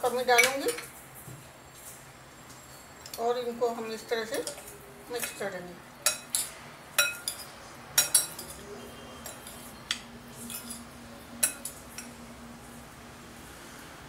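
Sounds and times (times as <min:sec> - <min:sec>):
spoon clinking against glass bowl: 0:00.3 - 0:00.9, 0:04.2 - 0:12.2
spoon stirring chunky food: 0:03.1 - 0:12.2.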